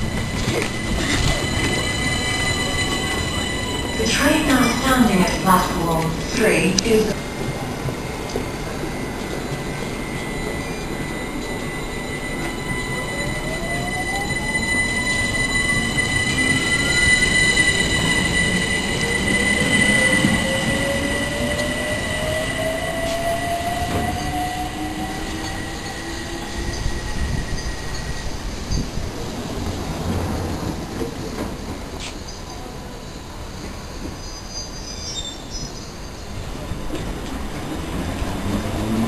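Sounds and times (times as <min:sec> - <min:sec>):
electric train motors whining: 0:00.0 - 0:28.8
high-pitched squeal: 0:00.0 - 0:29.0
wheels rumbling on rail: 0:00.0 - 0:39.0.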